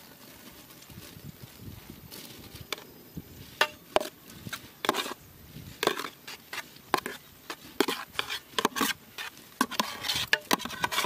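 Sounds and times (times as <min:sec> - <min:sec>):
metal ladle scraping a pot: 0:03.6 - 0:05.2, 0:05.8 - 0:11.0.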